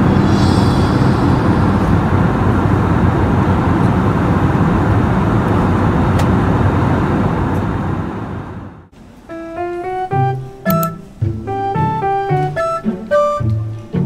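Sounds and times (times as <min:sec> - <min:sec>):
airliner cabin engine and air noise: 0:00.0 - 0:08.9.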